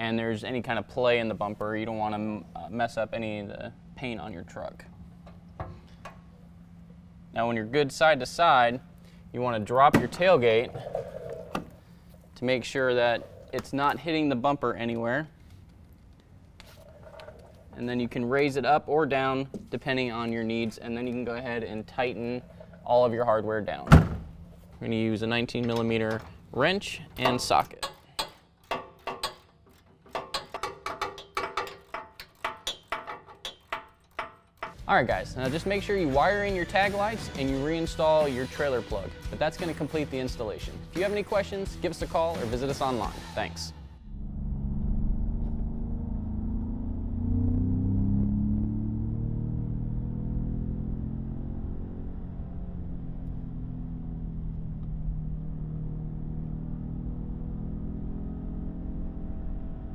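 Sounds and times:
ratchet wrench clicking: 27.8 - 34.8.

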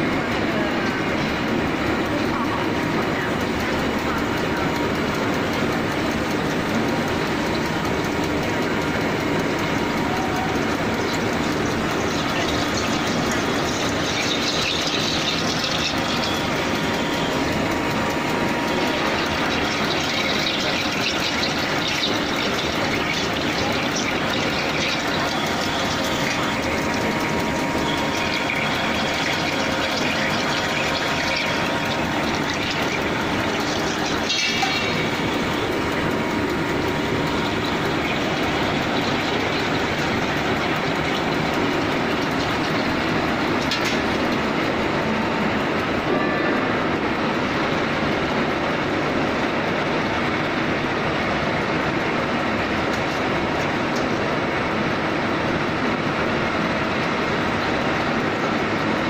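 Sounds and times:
drilling machine drilling into metal: 0.0 - 45.7.

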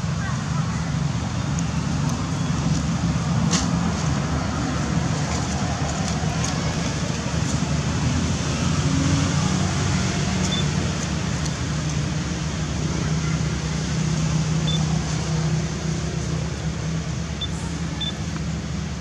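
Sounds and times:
low droning engine hum: 0.0 - 19.0.

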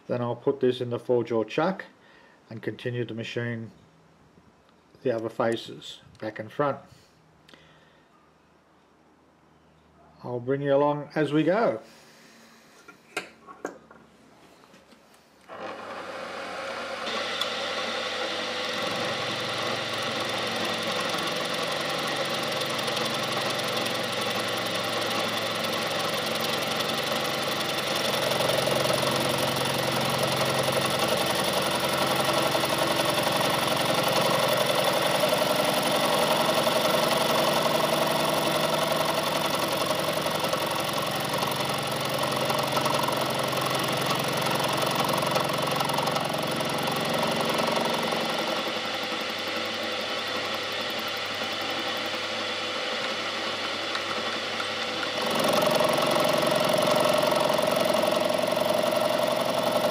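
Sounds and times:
milling machine cutting metal: 15.5 - 59.9.

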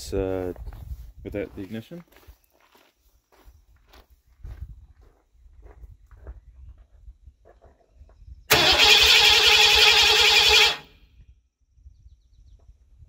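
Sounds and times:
starter motor cranking engine: 8.5 - 10.9.

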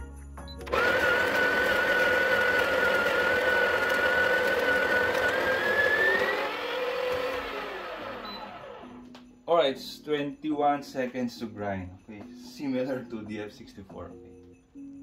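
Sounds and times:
coffee grinder grinding: 0.7 - 9.0.

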